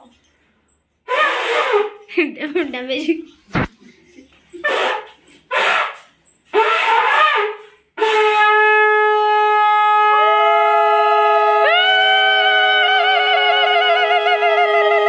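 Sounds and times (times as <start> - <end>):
conch shell blown: 1.0 - 2.0, 4.6 - 15.0.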